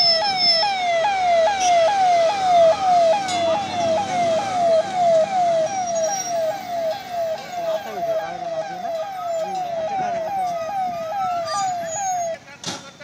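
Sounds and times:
fire engine siren: 0.0 - 12.5.

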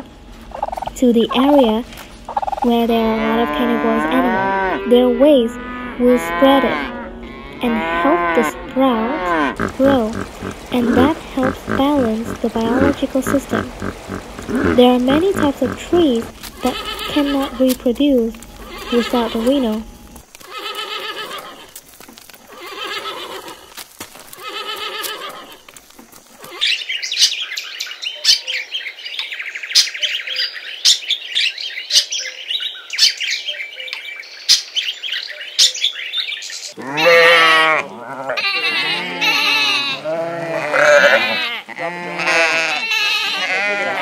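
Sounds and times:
sheep bleating: 6.2 - 17.7, 18.6 - 19.8, 24.4 - 25.6, 36.8 - 44.0
horses whinnying: 9.2 - 17.6, 20.4 - 21.8, 22.5 - 23.7, 24.3 - 25.6, 36.8 - 44.0
parrots chirping and chattering: 9.6 - 19.8.

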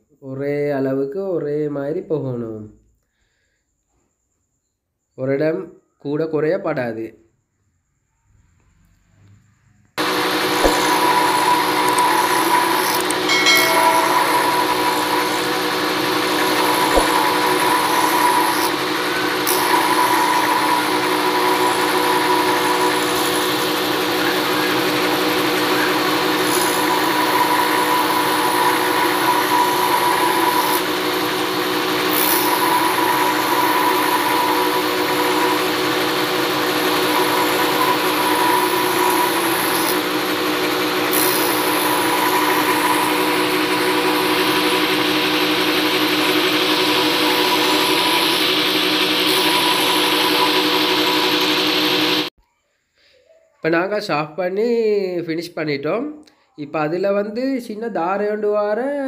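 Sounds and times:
motor hum: 10.0 - 52.3.

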